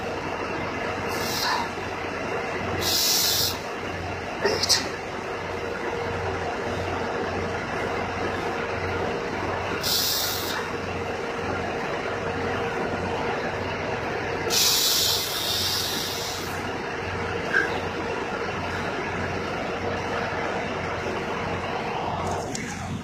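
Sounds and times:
diesel trucks idling: 0:00.0 - 0:23.0
air brakes hissing: 0:02.8 - 0:03.7, 0:09.8 - 0:10.8, 0:14.5 - 0:16.6.

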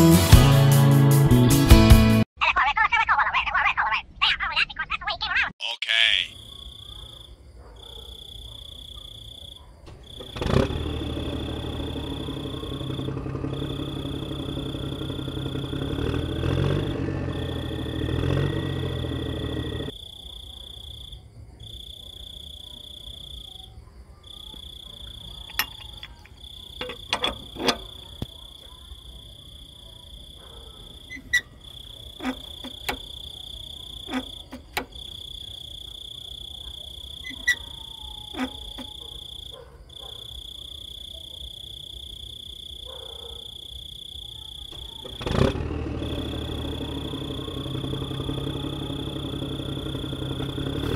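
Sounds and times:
insect chirping: 0:06.0 - 0:50.9
toy electric motor whining: 0:37.2 - 0:39.0.

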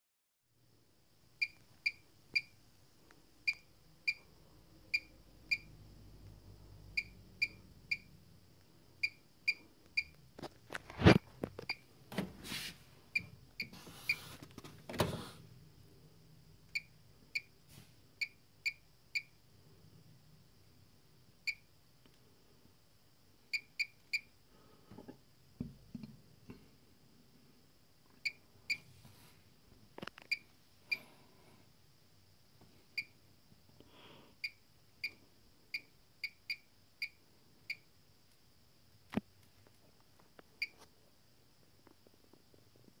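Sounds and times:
washing machine beeping: 0:04.9 - 0:05.8, 0:07.0 - 0:08.1.

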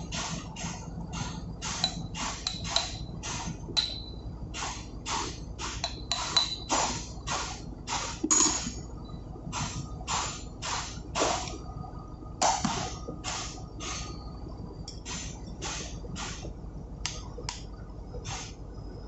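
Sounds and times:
metal-on-metal taps ringing: 0:08.3 - 0:08.8.

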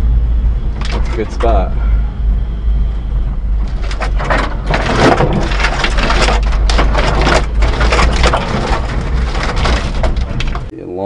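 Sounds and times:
engine and road rumble: 0:00.0 - 0:10.8
tyres crunching over stones: 0:03.6 - 0:10.7.

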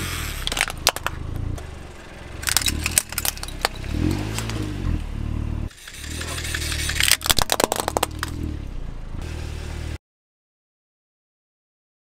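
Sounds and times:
car engine running slowly: 0:00.0 - 0:10.0
plastic toys cracking under tyre: 0:00.4 - 0:01.6, 0:02.4 - 0:04.6, 0:05.7 - 0:08.4.

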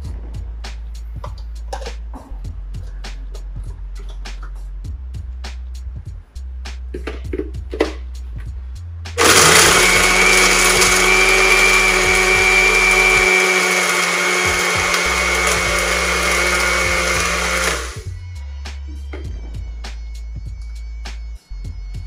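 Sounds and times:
electric blender motor whine: 0:09.2 - 0:18.1.

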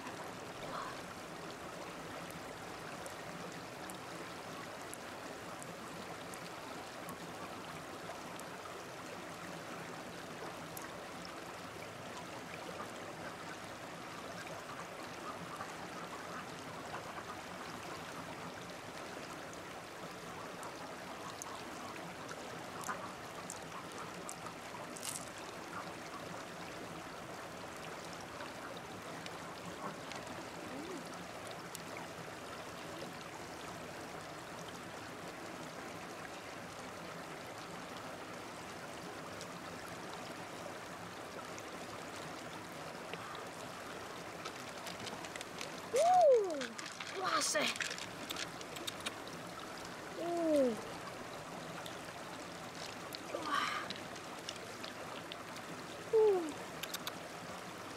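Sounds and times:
stream running over rocks: 0:00.0 - 0:57.9
small clicks and taps: 0:47.8 - 0:49.2, 0:56.8 - 0:57.2.

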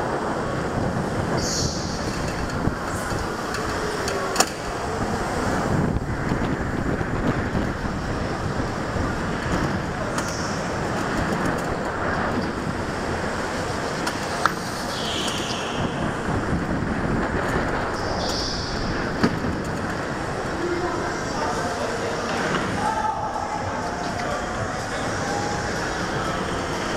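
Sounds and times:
wind on microphone: 0:00.0 - 0:21.5
go-kart driving at speed: 0:00.0 - 0:26.9.

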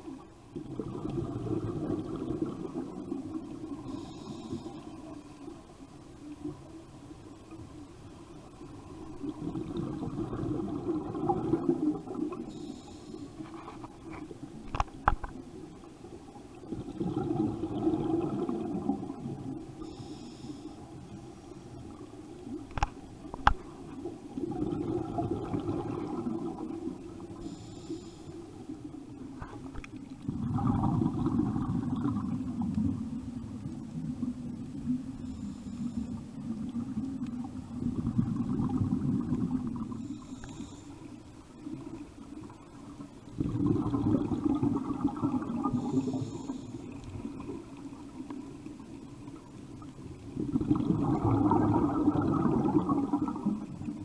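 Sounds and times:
exhaled bubbles rushing: 0:00.0 - 0:04.0, 0:08.5 - 0:12.5, 0:16.5 - 0:19.8, 0:21.8 - 0:27.4, 0:29.2 - 0:35.1, 0:36.4 - 0:40.2, 0:41.6 - 0:54.0
regulator inhale hiss: 0:03.7 - 0:05.2, 0:12.4 - 0:13.9, 0:19.7 - 0:22.0, 0:27.2 - 0:28.9, 0:35.1 - 0:36.4, 0:39.9 - 0:41.4, 0:45.7 - 0:47.2.

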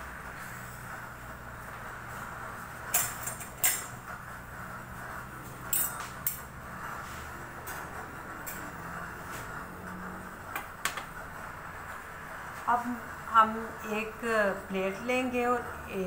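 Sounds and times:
gas burner hiss: 0:00.0 - 0:16.0
dishes clinking: 0:05.7 - 0:06.5.

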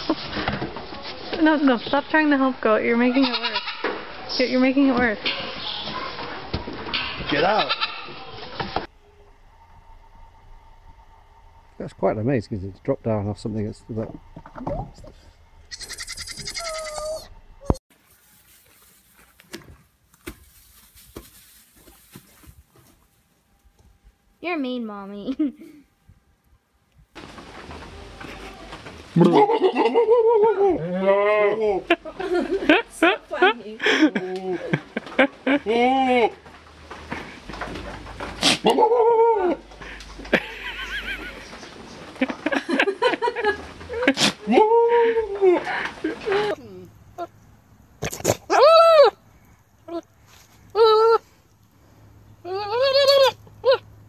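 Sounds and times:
goat bleating: 0:03.1 - 0:03.9, 0:07.3 - 0:08.3, 0:15.7 - 0:17.3, 0:52.4 - 0:53.8.

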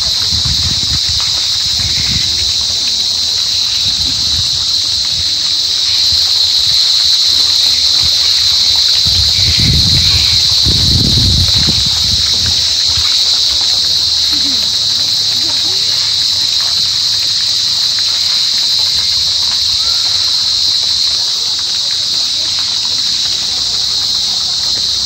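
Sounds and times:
low rumble on microphone: 0:00.0 - 0:05.4, 0:08.9 - 0:16.0
cicada buzzing: 0:00.0 - 0:25.0.

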